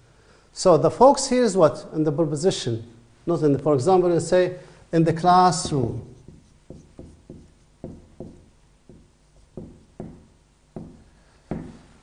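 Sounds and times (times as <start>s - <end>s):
marker writing on whiteboard: 5.5s - 11.8s.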